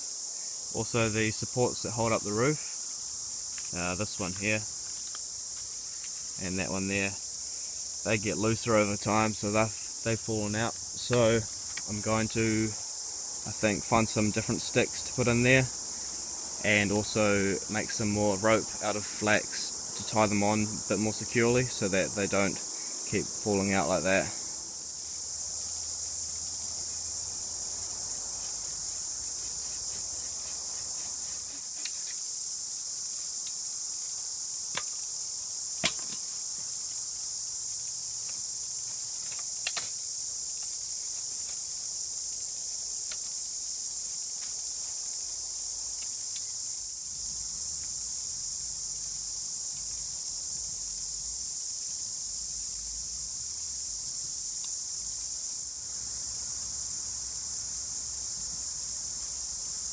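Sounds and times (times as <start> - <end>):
cicadas chorus: 0.0 - 59.9.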